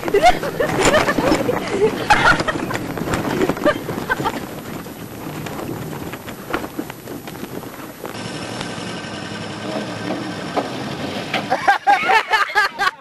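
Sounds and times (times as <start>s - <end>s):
wind noise: 0.0s - 10.2s
truck engine: 0.0s - 12.0s.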